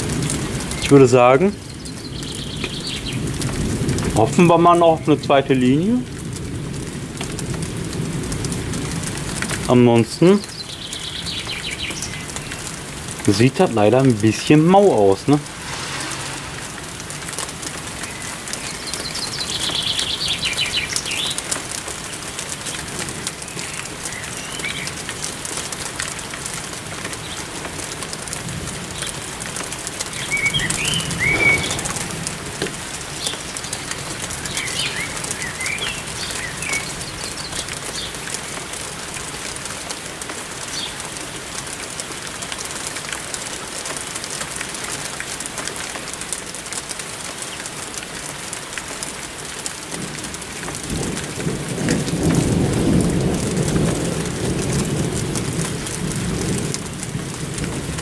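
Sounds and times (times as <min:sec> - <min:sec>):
steady rain falling: 0:00.0 - 0:58.0
songbirds chirping and whistling: 0:01.5 - 0:03.3, 0:10.4 - 0:12.7, 0:18.0 - 0:21.4, 0:30.1 - 0:32.5, 0:33.1 - 0:38.2
low swelling sound: 0:15.2 - 0:18.3, 0:30.8 - 0:33.1.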